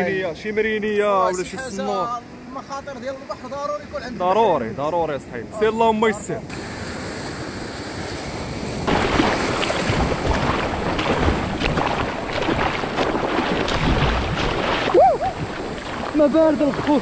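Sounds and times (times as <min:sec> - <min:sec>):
sea surf: 0:06.4 - 0:17.0
crackles: 0:08.9 - 0:17.0
wind on microphone: 0:08.9 - 0:17.0.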